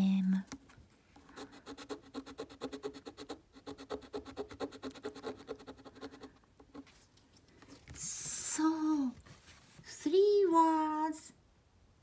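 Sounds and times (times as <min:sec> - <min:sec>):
coin scratching lottery ticket: 0:01.4 - 0:06.9.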